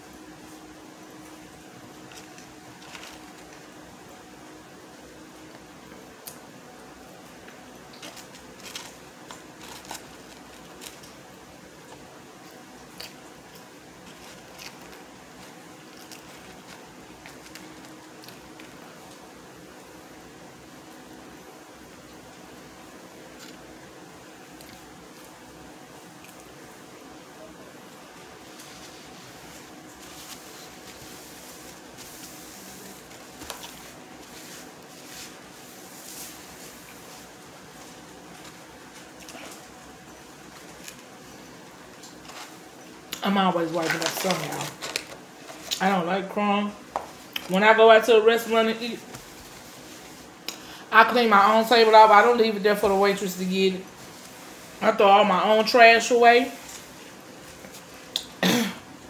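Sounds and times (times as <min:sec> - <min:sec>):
low room hum: 0:00.0 - 0:59.0
paper napkin rustling: 0:02.0 - 0:03.8, 0:08.0 - 0:11.3, 0:14.0 - 0:18.8, 0:28.4 - 0:46.0, 0:47.1 - 0:50.5, 0:51.4 - 0:58.1.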